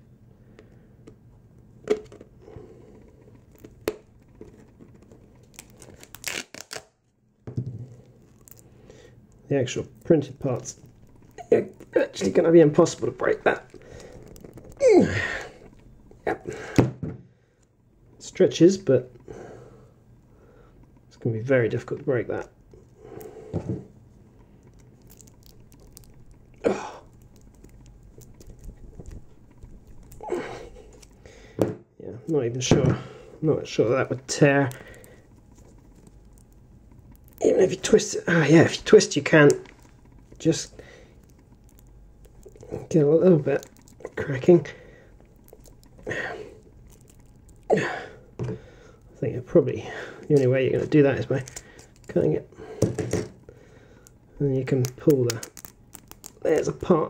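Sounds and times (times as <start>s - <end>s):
plastic cracking and crinkling: 3.0s - 16.2s, 21.8s - 31.4s, 33.6s - 49.5s, 50.2s - 57.0s.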